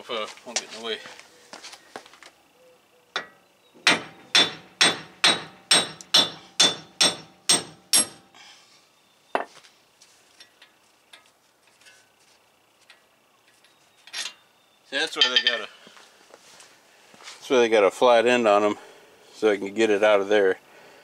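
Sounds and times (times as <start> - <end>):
sledgehammer hitting metal: 3.2 - 8.3.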